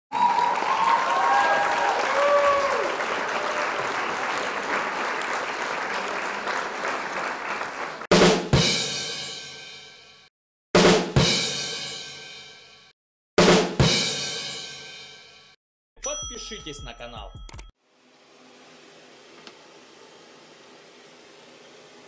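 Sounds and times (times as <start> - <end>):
crowd cheering and applauding: 0.1 - 8.1
drum and cymbal crashes: 8.1 - 15.6.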